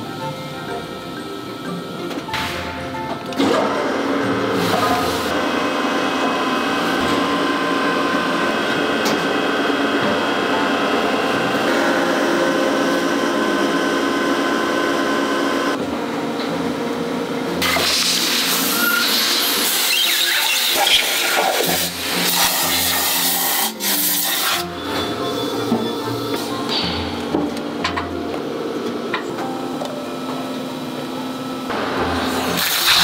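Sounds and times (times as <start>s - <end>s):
hydraulic press hum: 1.4s - 33.0s.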